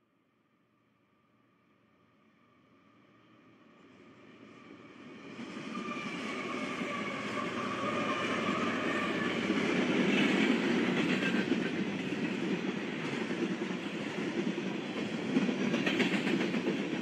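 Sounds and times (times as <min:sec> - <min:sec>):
diesel locomotive whine: 0:02.7 - 0:17.0
freight train rumbling: 0:04.3 - 0:17.0.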